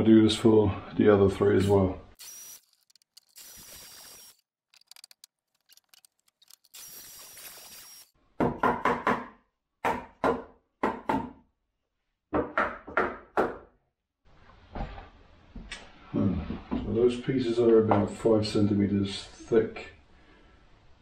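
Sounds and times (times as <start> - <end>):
sharp knocks on wood: 8.4 - 11.3.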